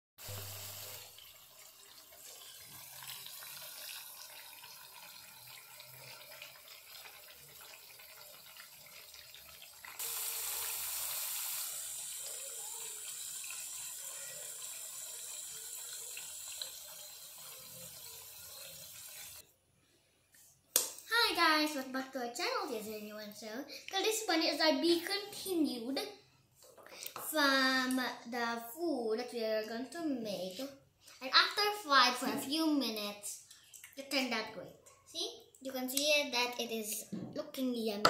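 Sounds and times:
food deep-frying in hot oil: 0.2 - 19.4.

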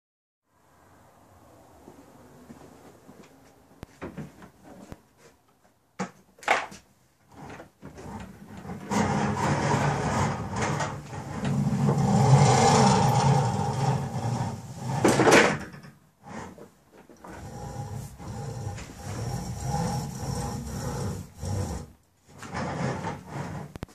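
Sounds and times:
pulleys rolling along steel track: 8.9 - 15.2, 17.3 - 21.9.

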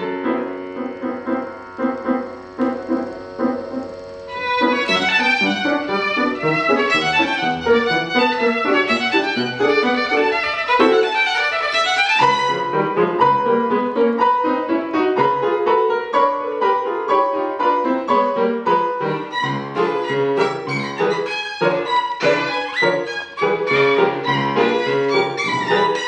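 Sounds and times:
violin playing fast notes: 0.0 - 13.4, 19.0 - 26.0.

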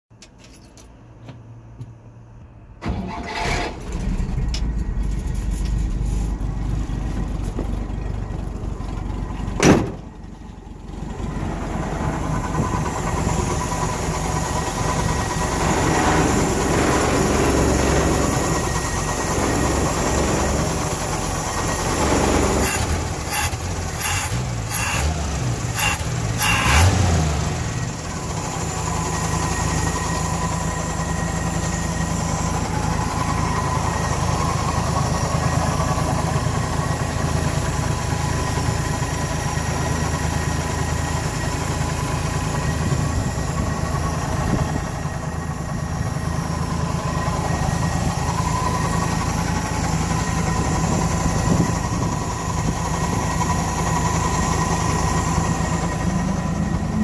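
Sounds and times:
car engine starting and idling: 1.6 - 57.0.

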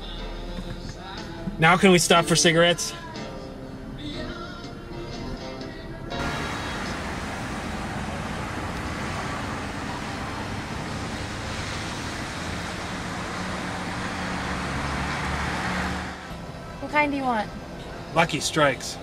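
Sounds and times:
road traffic: 4.8 - 19.0
minivan engine driving past: 6.2 - 18.2.

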